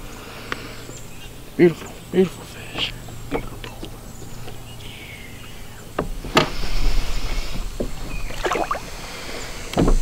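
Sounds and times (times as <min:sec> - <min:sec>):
water splashes: 0:08.1 - 0:09.3.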